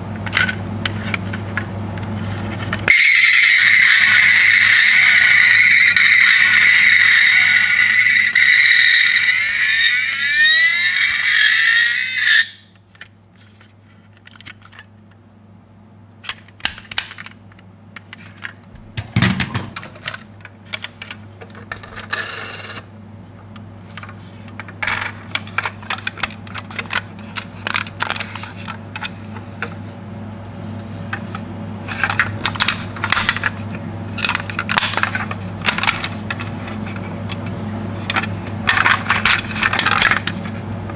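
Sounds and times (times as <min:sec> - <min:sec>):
toy electronic siren: 0:02.9 - 0:12.7
toy cars clicking and clinking: 0:21.7 - 0:22.8.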